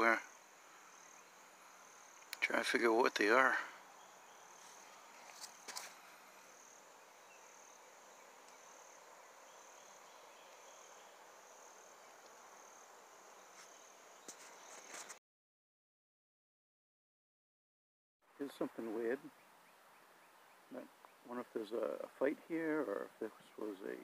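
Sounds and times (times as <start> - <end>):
insect trilling: 0.0 - 14.7
low background hiss: 0.0 - 14.8, 18.3 - 24.0.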